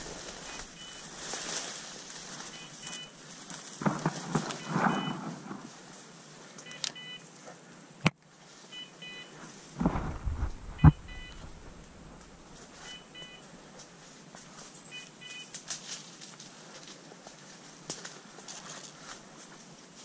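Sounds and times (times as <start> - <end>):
crashing through brush: 3.8 - 5.7, 9.8 - 12.6
collar double beep: 4.6 - 5.1, 8.8 - 9.3, 10.8 - 11.6, 12.8 - 13.4.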